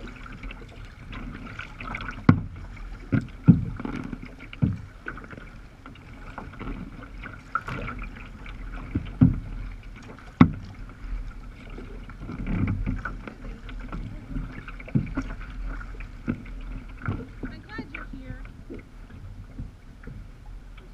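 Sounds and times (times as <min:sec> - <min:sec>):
water slapping kayak hull: 0:00.0 - 0:20.9
hull knocks: 0:02.0 - 0:04.9, 0:08.8 - 0:10.8.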